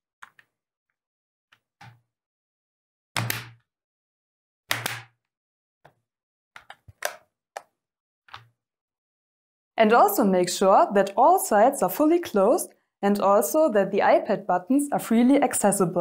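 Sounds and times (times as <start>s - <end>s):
plastic case clips snapping: 4.7s - 5.1s.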